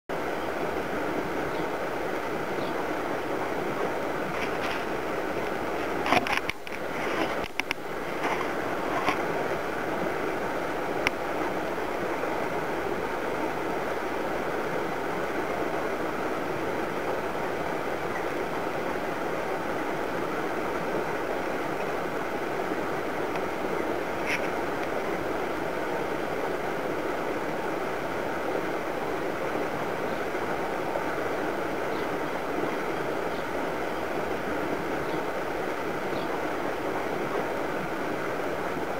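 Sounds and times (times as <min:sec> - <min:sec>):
outdoor background rush: 0:00.1 - 0:38.9
small birds chirping: 0:01.5 - 0:01.8, 0:02.5 - 0:02.9, 0:31.8 - 0:34.0, 0:34.9 - 0:35.4, 0:36.0 - 0:36.5.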